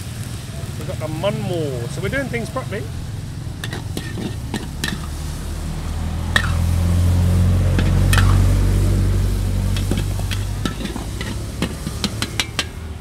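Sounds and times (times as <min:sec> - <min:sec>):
meat sizzling in a wok: 0:00.0 - 0:13.0
low rumble: 0:00.8 - 0:13.0
metal spatula clinking on wok: 0:09.7 - 0:12.8.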